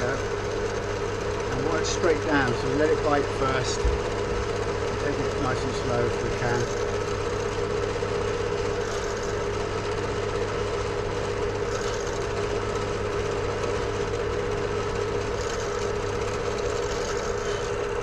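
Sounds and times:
pillar drill motor humming: 0.0 - 18.0.

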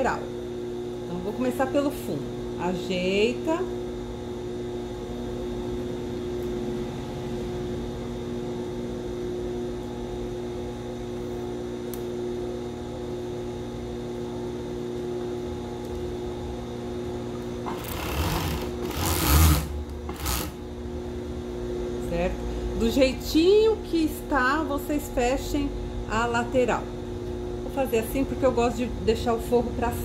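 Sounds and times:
overlock machine motor humming: 15.5 - 21.6
sewing machine stitching: 17.7 - 20.6.

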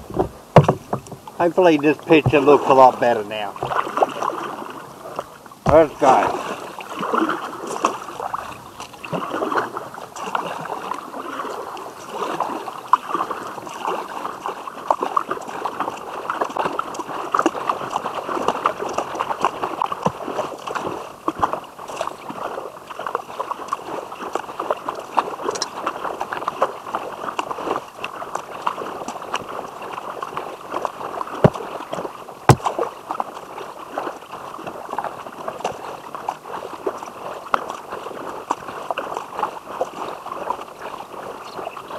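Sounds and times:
sharp knocks: 0.0 - 1.2
paddle splashing water: 0.0 - 41.9.

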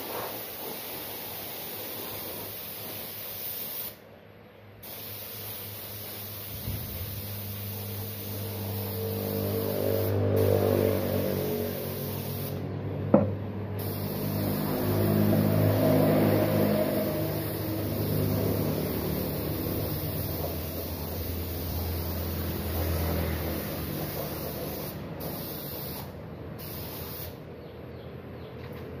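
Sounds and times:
air compressor motor drone: 6.5 - 25.2.

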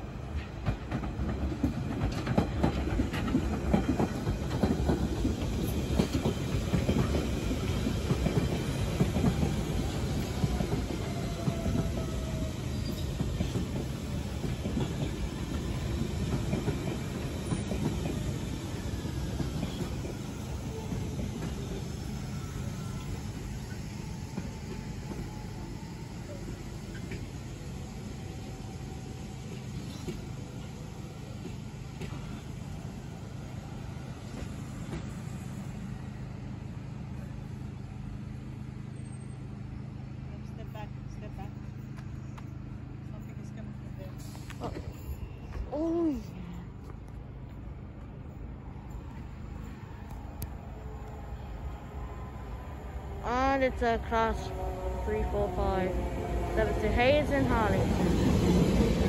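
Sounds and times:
train low rumble: 0.0 - 59.0
wheel clatter over rail joints: 0.3 - 12.0
train motor hum: 46.9 - 59.0.

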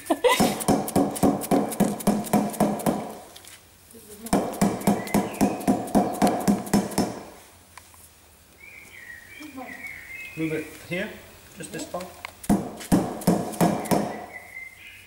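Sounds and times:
rubber mallet tapping: 0.4 - 3.2, 4.3 - 7.3.

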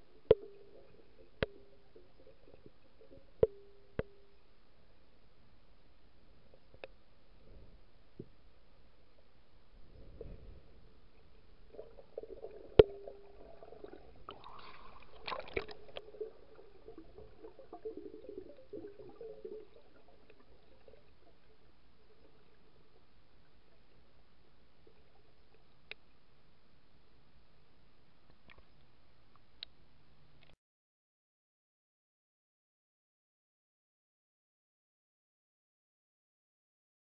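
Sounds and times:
muffled underwater sloshing: 9.8 - 25.7.

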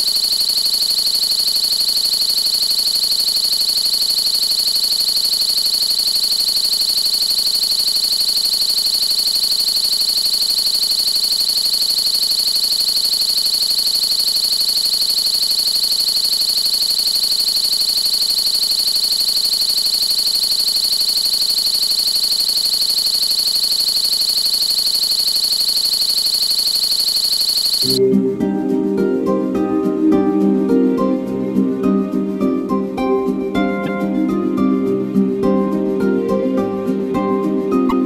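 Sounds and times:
pulsing high electronic tone: 0.0 - 28.2.

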